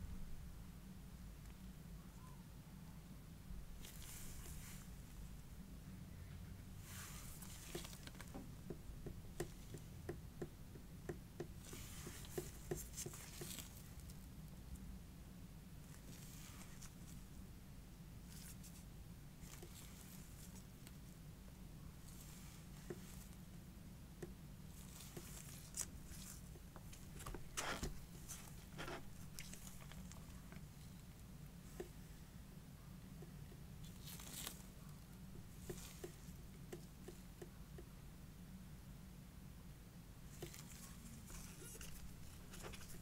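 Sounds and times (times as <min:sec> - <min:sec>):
soft rustling: 0:03.8 - 0:05.4, 0:06.4 - 0:14.6, 0:15.8 - 0:17.5, 0:18.2 - 0:32.3, 0:33.1 - 0:37.9, 0:40.2 - 0:43.0.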